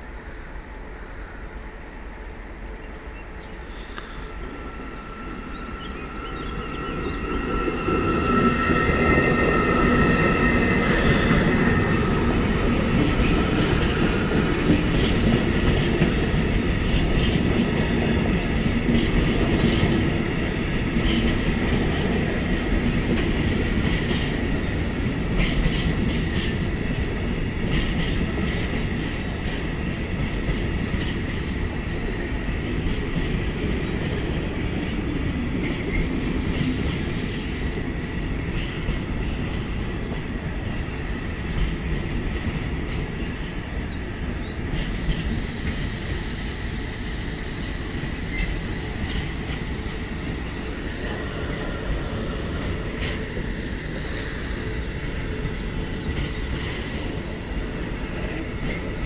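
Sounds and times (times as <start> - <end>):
heavy train rumble: 0.0 - 59.0
train wheels clacking over rail joints: 9.7 - 40.8.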